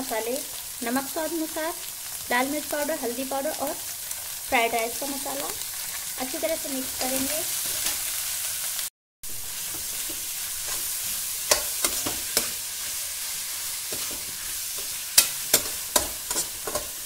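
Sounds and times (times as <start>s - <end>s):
vegetables sizzling in oil: 0.0s - 17.0s
metal spoon scraping a pan: 6.8s - 8.3s, 9.6s - 17.0s.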